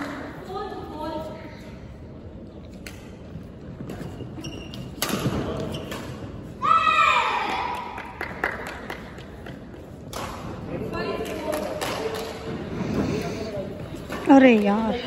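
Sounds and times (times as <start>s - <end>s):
rackets hitting shuttlecock: 4.8s - 6.3s.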